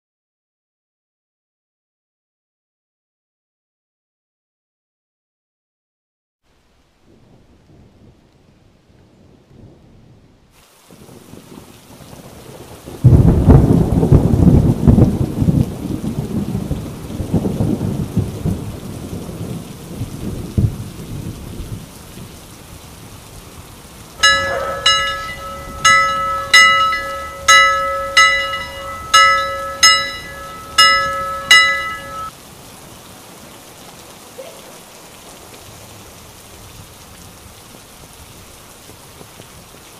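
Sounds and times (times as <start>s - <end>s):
steady rain: 6.4s - 39.9s
thunderclap rumbling: 10.9s - 22.4s, 24.0s - 32.3s
school bell struck: 24.2s - 32.3s.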